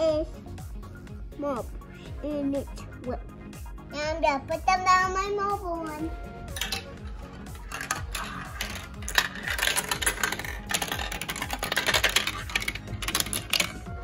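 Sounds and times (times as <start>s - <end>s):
marbles rolling down plastic track: 6.6s - 13.9s.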